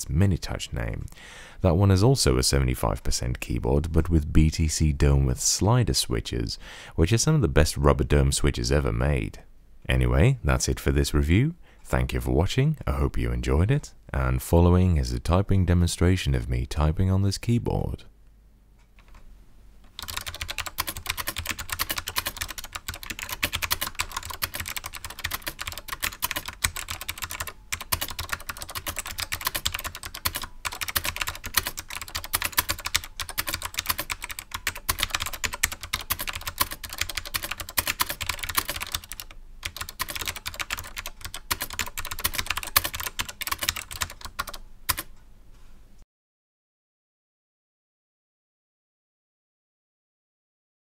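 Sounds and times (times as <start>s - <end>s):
clicky keyboard typing: 19.9s - 45.1s.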